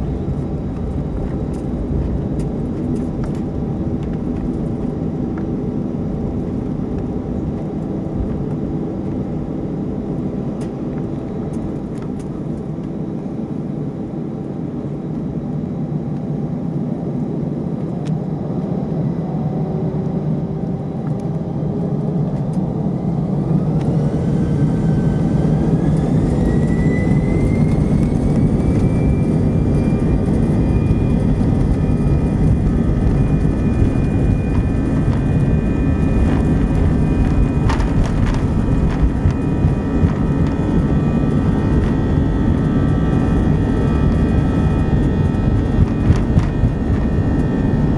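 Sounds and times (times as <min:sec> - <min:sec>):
jet engines spooling up: 0:22.3 - 0:47.9.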